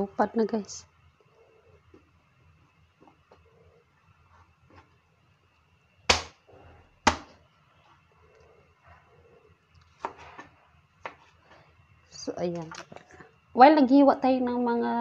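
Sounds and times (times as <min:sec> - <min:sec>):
knife chopping on plastic board: 0:06.1 - 0:06.4, 0:07.0 - 0:07.4.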